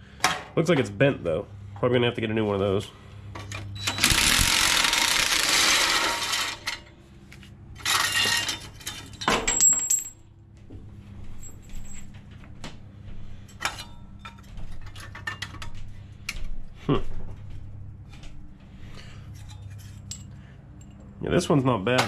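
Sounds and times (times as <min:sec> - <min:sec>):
impact driver running: 0:03.8 - 0:06.6.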